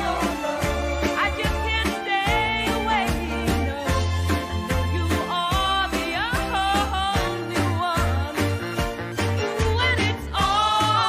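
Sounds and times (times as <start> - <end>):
woman singing: 0.0 - 8.6, 9.4 - 11.0
bass and drum beat: 0.0 - 11.0.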